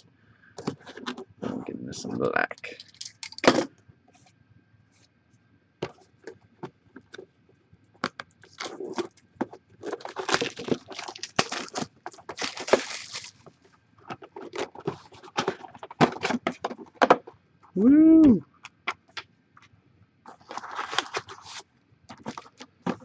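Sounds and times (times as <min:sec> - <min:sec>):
plastic shrink wrap crinkling: 0:09.8 - 0:13.5, 0:20.3 - 0:23.0.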